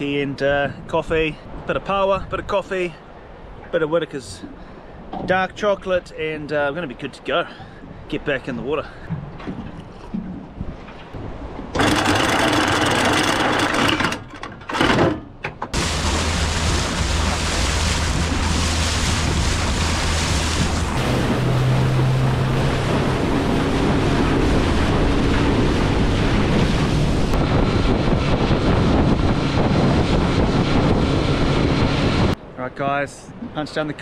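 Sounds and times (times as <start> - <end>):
wind and water rushing: 0.0 - 34.0
outboard motor running: 11.7 - 15.1, 15.7 - 32.4.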